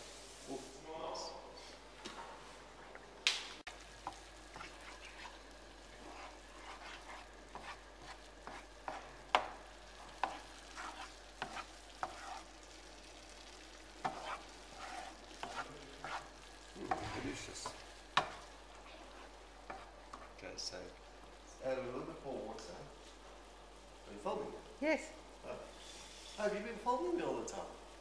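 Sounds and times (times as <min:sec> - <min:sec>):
sauce sizzling: 0:00.0 - 0:00.8, 0:03.5 - 0:28.0
wooden spoon scraping a pan: 0:04.0 - 0:12.8, 0:13.9 - 0:20.4, 0:25.6 - 0:26.6.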